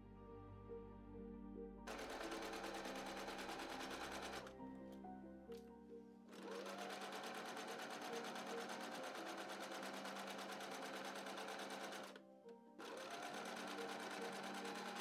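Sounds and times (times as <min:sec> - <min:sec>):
sewing machine stitching: 0:01.9 - 0:04.5, 0:06.3 - 0:12.2, 0:12.8 - 0:15.0.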